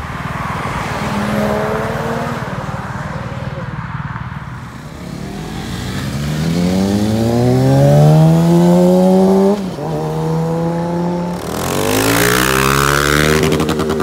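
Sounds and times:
motorcycle accelerating hard: 5.0s - 14.0s.

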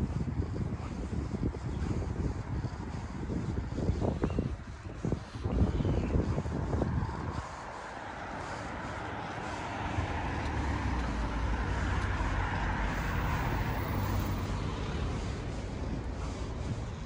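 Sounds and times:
vehicle passing by: 6.1s - 17.0s.

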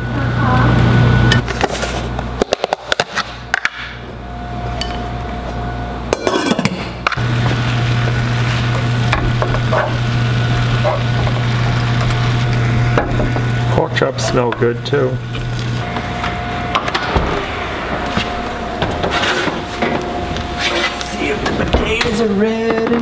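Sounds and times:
low hum: 3.9s - 23.0s
pork chops sizzling: 7.2s - 22.4s.

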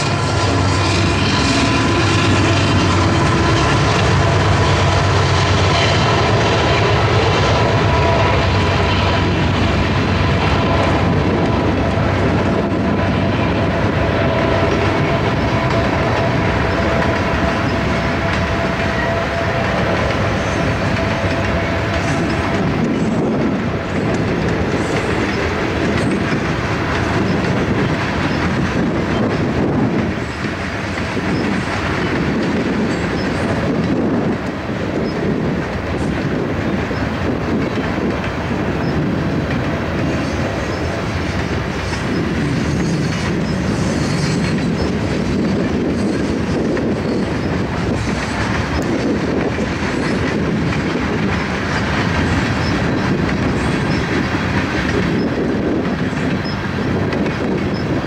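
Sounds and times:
clickety-clack over rail joints: 0.0s - 58.0s
train wheels rumbling on rail: 0.0s - 58.0s
high wheel squeal: 14.5s - 23.3s, 40.1s - 48.9s.

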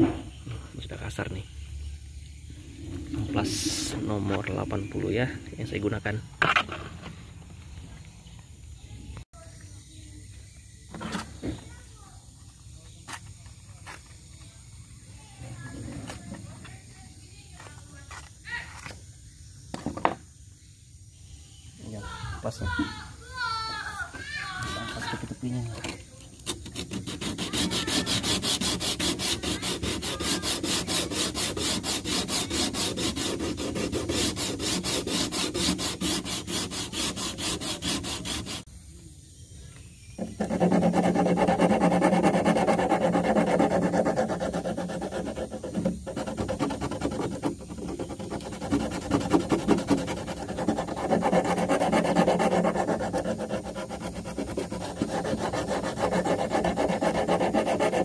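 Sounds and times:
sandpaper rubbing on wood: 3.3s - 4.4s, 24.7s - 25.2s, 26.4s - 38.7s, 40.2s - 58.0s.

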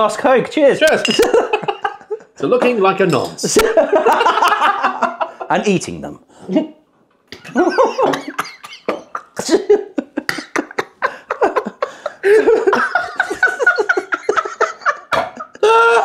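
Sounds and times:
men laughing: 1.0s - 2.9s, 3.5s - 5.7s, 7.3s - 16.0s
coughing: 7.3s - 11.8s.

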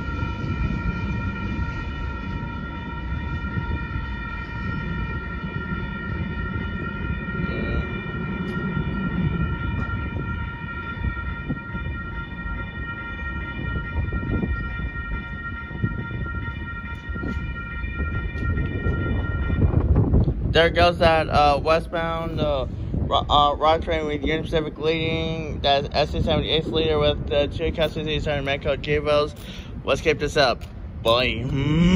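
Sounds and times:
high-pitched whine: 0.0s - 11.6s
train rumbling: 0.0s - 12.8s.

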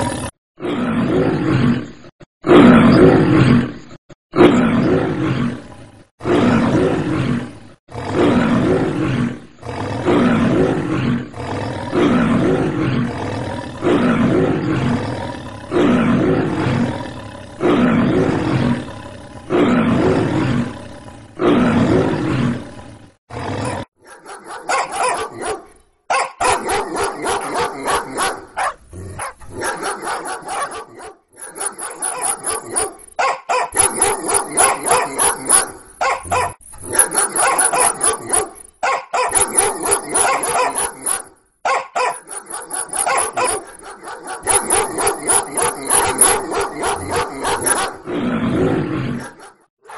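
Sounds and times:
dogs barking excitedly: 23.9s - 48.1s, 49.1s - 49.9s
man imitating lion roars: 43.2s - 49.4s.

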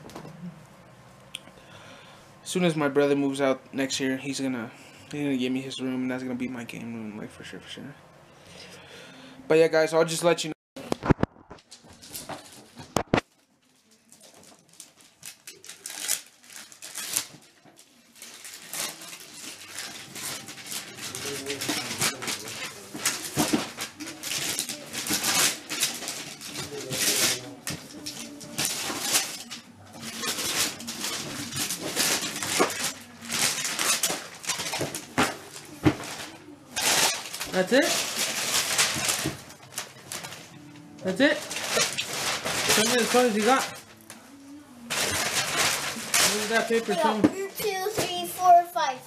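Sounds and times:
wrapping paper rustling and tearing: 11.1s - 48.6s.

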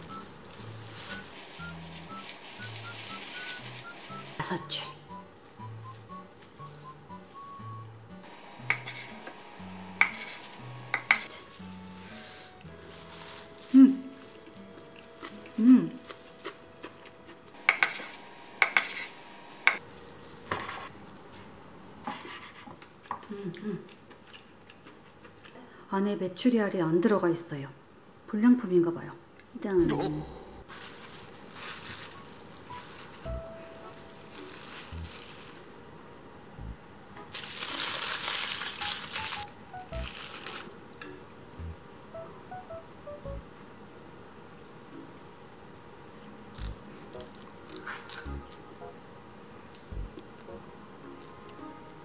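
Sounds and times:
soft background music: 0.0s - 19.8s, 30.7s - 35.6s, 36.5s - 43.6s, 46.6s - 52.0s
aluminium foil crinkling: 0.0s - 21.3s, 30.7s - 35.8s, 37.3s - 40.7s, 46.5s - 48.6s.

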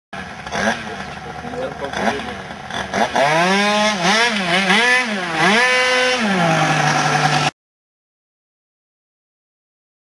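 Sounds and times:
small motorcycle engine revving: 0.2s - 7.6s.

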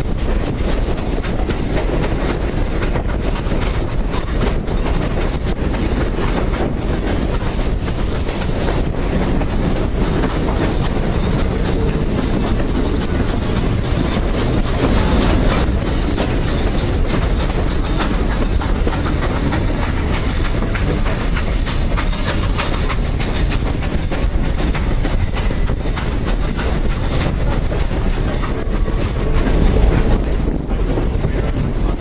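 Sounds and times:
train coaches rumbling on track: 0.0s - 32.0s
wheels clicking on rails: 0.0s - 32.0s.

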